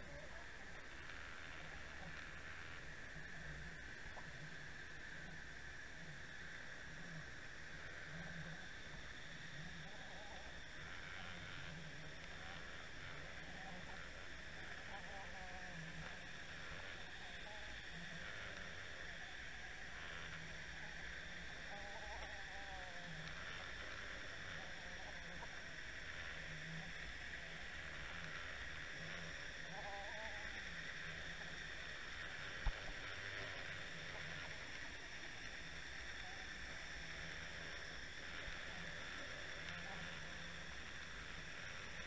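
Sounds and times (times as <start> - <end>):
faint wavering tones: 0.0 - 42.0
underwater hiss and rumble: 0.0 - 42.0.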